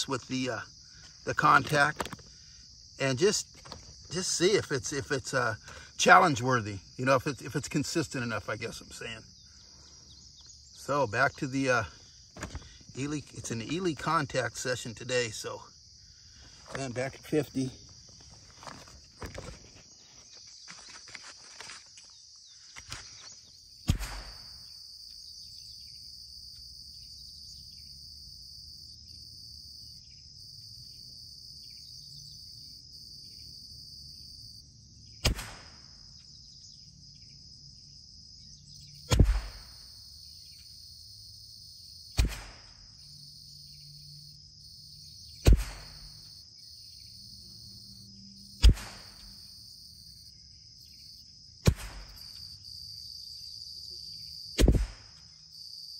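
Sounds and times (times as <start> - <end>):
high insect drone: 0.0 - 55.9
rifle shots: 23.9 - 24.6, 35.2 - 35.9, 39.1 - 39.8, 42.2 - 42.8, 45.4 - 46.2, 48.6 - 49.4, 51.6 - 52.3, 54.6 - 55.1.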